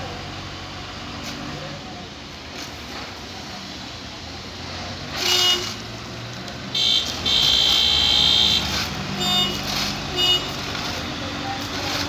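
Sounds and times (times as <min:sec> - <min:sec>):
diesel truck engine running: 0:00.0 - 0:12.0
vehicle horn honking: 0:05.2 - 0:05.8, 0:06.8 - 0:10.6.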